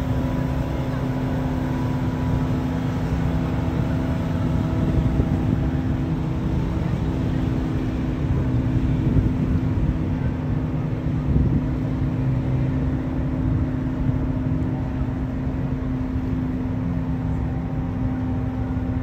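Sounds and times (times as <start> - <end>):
boat engine droning: 0.0 - 19.0.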